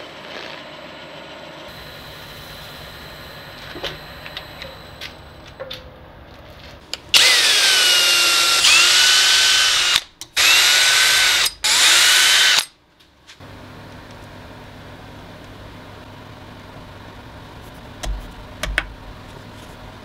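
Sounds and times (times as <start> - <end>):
cordless drill motor whine: 7.1 - 12.7.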